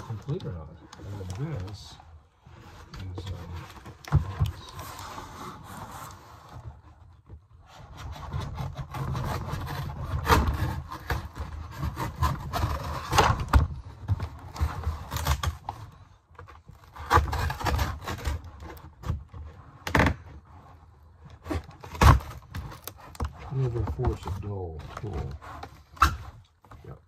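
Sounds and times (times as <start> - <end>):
knife sawing cardboard: 7.7 - 13.4, 16.9 - 18.7, 22.8 - 24.2.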